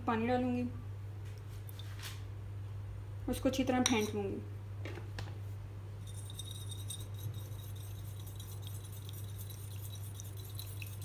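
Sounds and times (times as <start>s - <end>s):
steady low hum: 0.0s - 11.0s
wire whisk clinking against glass bowl: 3.8s - 4.1s, 6.1s - 11.0s.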